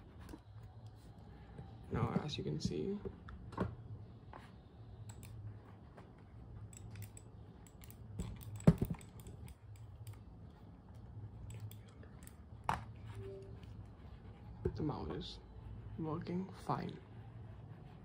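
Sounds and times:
faint low hum: 0.0 - 18.0
computer mouse clicking: 5.0 - 5.4, 6.7 - 10.3, 10.9 - 12.4.

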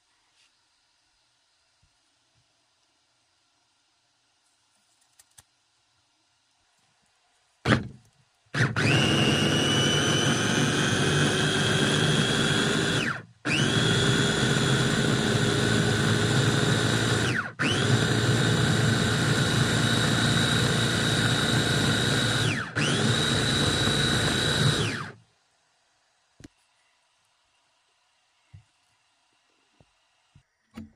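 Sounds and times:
electric food chopper whining: 7.7 - 7.9, 8.6 - 25.2.

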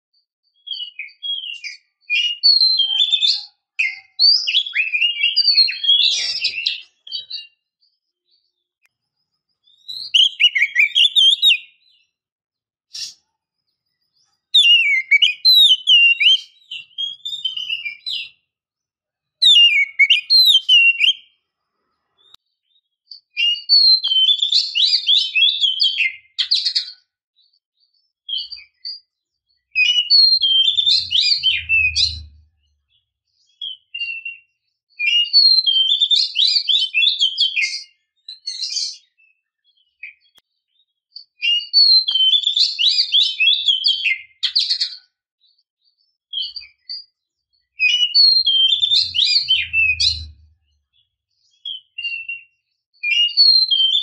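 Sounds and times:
bird singing whistled phrases: 0.6 - 7.6, 9.6 - 12.1, 14.6 - 18.4, 19.4 - 21.4, 23.1 - 27.1, 29.7 - 32.5, 33.4 - 40.4, 41.3 - 45.0, 47.7 - 54.0.

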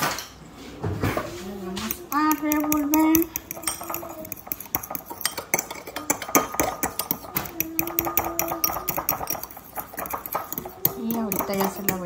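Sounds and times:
fork scraping ceramic bowl: 1.8 - 12.0.

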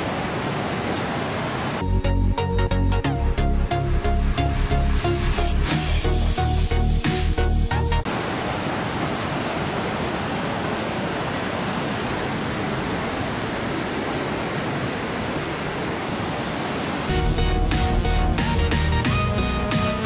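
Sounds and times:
ocean surf breaking: 0.0 - 1.8, 8.0 - 17.1
music: 1.8 - 8.1, 17.1 - 20.0.

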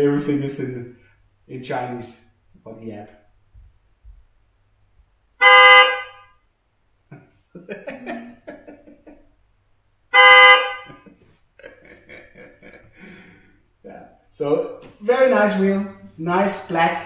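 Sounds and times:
electronic horn honks: 5.4 - 6.2, 10.1 - 11.0.

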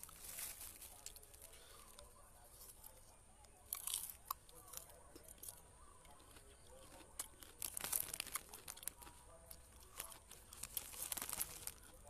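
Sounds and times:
plastic bag crinkling: 0.0 - 1.6, 6.9 - 9.1, 9.7 - 12.0
crunchy bite: 3.7 - 12.0.

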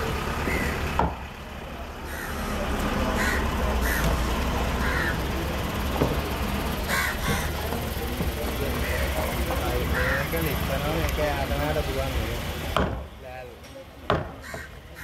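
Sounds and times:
birds harsh calls: 0.5 - 0.9, 2.0 - 4.2, 4.8 - 5.3, 6.8 - 7.6, 8.7 - 10.5, 14.4 - 15.0
machete chopping on wooden block: 12.8 - 13.0.

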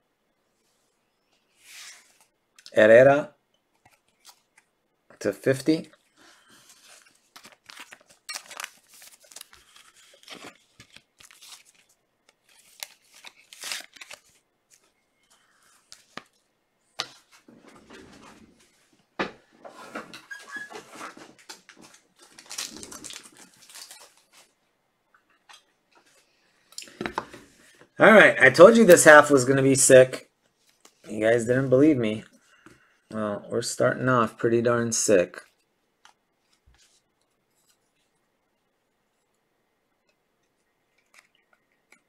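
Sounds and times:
packaging rustling and tearing: 6.6 - 14.9, 21.1 - 24.6.

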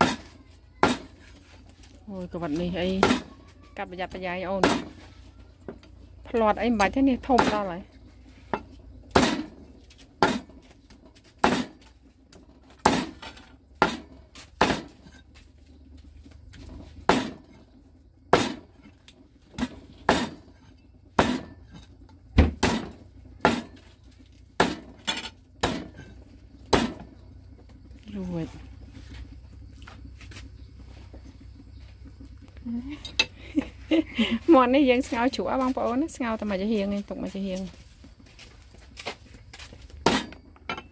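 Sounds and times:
knife chopping on cutting board: 11.4 - 11.8, 14.6 - 14.9, 24.6 - 24.9.

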